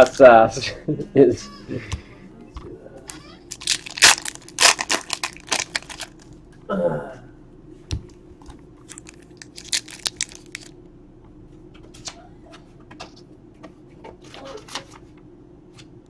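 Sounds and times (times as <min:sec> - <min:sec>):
foil wrapper crinkling: 0:03.5 - 0:06.3, 0:08.8 - 0:10.7.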